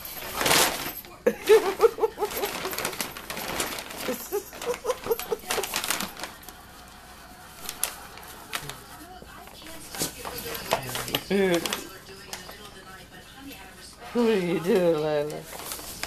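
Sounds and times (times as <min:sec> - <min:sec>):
paper bag crinkling and tearing: 0:00.0 - 0:12.7, 0:14.1 - 0:16.0
person laughing: 0:01.3 - 0:03.0, 0:04.0 - 0:06.0.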